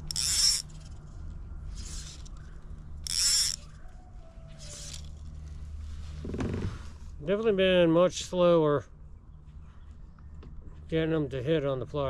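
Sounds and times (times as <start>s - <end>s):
fly line swishing through rod guides: 0.0s - 2.4s, 3.0s - 3.6s, 4.5s - 6.1s.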